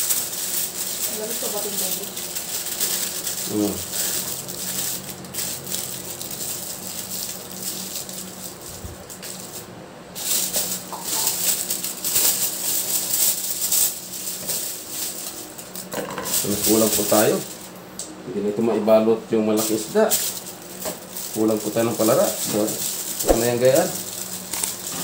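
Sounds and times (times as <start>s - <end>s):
aluminium foil crinkling: 0.0s - 17.8s, 19.5s - 25.0s.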